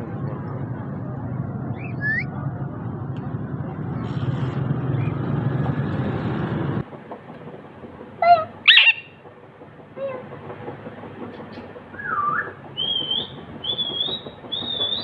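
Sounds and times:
low steady rumble: 0:00.0 - 0:11.2
parakeet squawks: 0:08.3 - 0:09.1.

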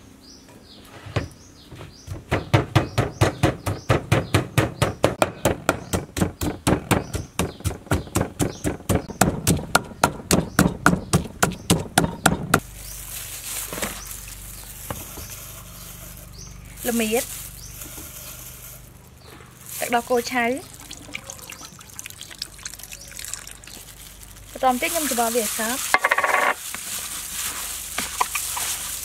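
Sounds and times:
pestle pounding in clay mortar: 0:02.1 - 0:12.6.

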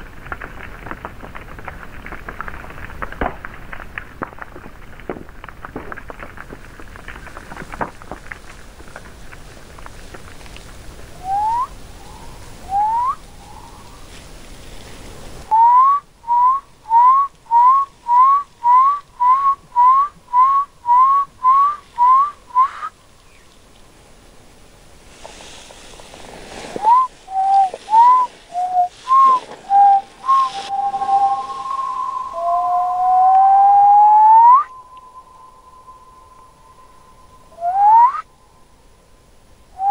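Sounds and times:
person whistling: 0:11.2 - 0:11.7, 0:12.7 - 0:13.2, 0:15.5 - 0:22.9, 0:26.8 - 0:38.3.

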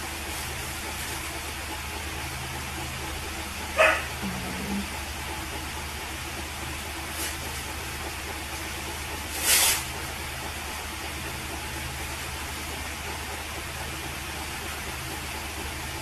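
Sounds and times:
loud hissing burst: 0:09.3 - 0:09.9.

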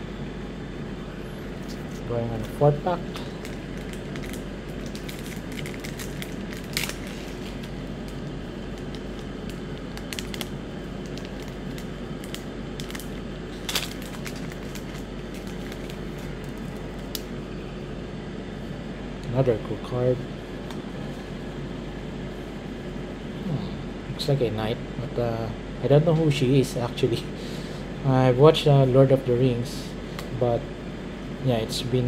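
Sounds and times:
steady background hum: 0:00.0 - 0:32.0
foil wrapper crinkling: 0:03.2 - 0:17.2.

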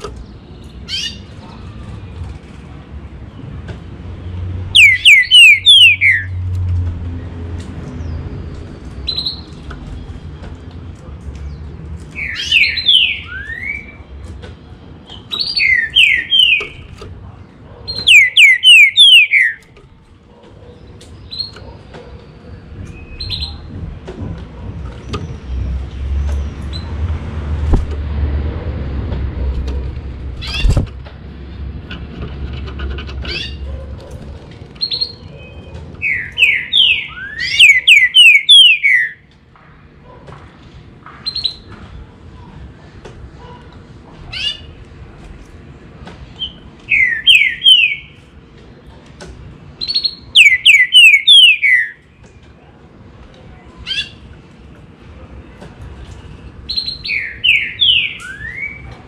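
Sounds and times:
bird singing whistled phrases: 0:04.8 - 0:06.4, 0:18.0 - 0:19.6, 0:34.9 - 0:39.2, 0:49.8 - 0:52.0, 0:56.7 - 0:58.9
sharp knock: 0:27.7 - 0:28.0.

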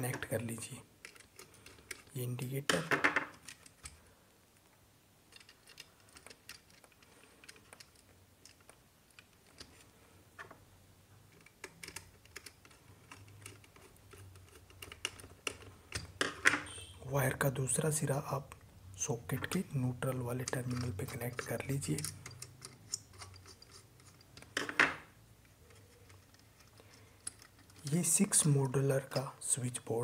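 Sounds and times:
screwdriver and wire clicking on plastic: 0:01.0 - 0:04.0, 0:05.3 - 0:10.6, 0:11.3 - 0:16.5, 0:19.4 - 0:24.7, 0:25.4 - 0:28.4.

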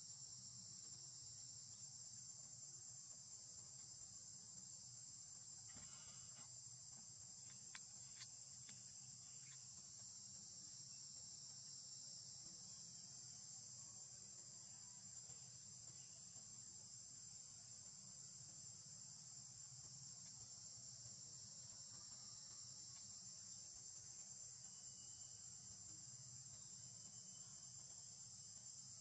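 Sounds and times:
high-pitched insect chorus: 0:00.0 - 0:29.0
faint small ticks: 0:05.4 - 0:10.8, 0:15.0 - 0:29.0.

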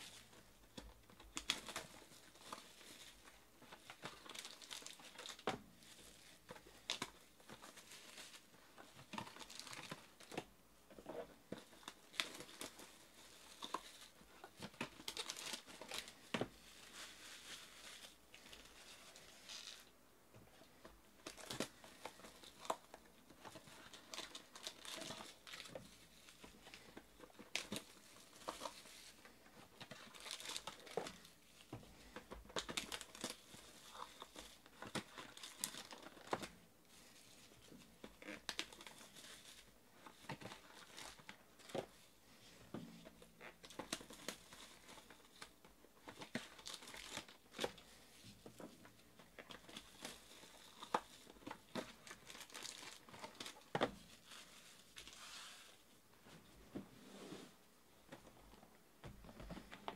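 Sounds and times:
plastic shrink-wrap crinkling and tearing: 0:00.0 - 0:10.4, 0:11.6 - 0:19.9, 0:21.2 - 0:31.6, 0:32.4 - 0:42.1, 0:43.3 - 0:55.8
foil packs rustling: 0:49.4 - 0:55.4.

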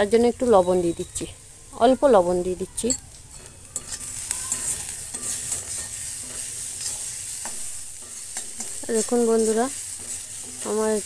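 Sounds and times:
vegetables sizzling in oil: 0:00.0 - 0:11.0
spatula scraping pan: 0:03.3 - 0:11.0.

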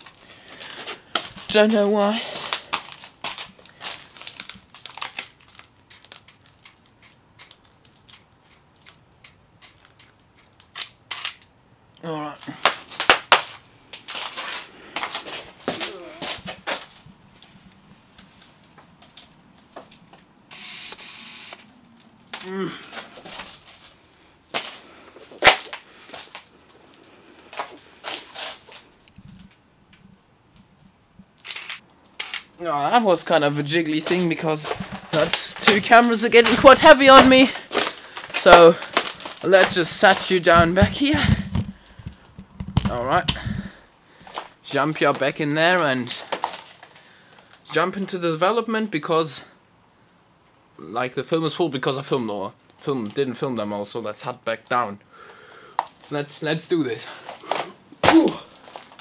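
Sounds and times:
camera clicks and handling noise: 0:02.4 - 0:11.6, 0:31.4 - 0:32.5, 0:37.2 - 0:43.6
knocks from handling cameras: 0:40.5 - 0:42.9.

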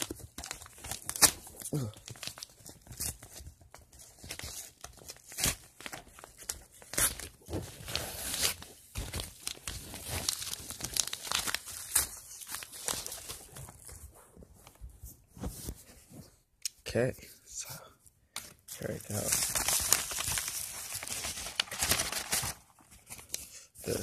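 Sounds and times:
envelope tearing and crinkling: 0:00.0 - 0:13.9, 0:18.8 - 0:24.0.

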